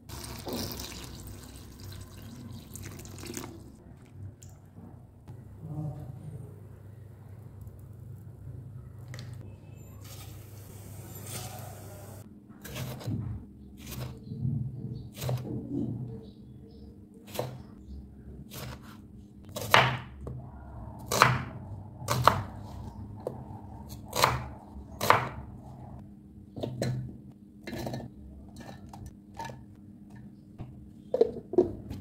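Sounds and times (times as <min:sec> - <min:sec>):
knife chopping on wooden board: 0:19.6 - 0:20.2.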